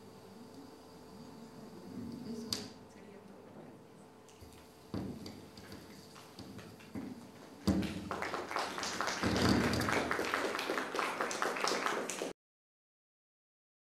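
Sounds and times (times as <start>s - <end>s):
audience applauding: 7.7s - 12.4s.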